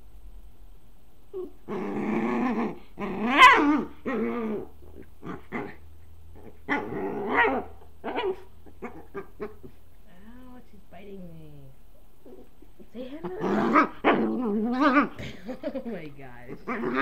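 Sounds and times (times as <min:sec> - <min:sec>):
dog growling: 0:01.3 - 0:09.8, 0:12.2 - 0:17.0
dog yipping: 0:03.3 - 0:04.2, 0:06.7 - 0:09.8.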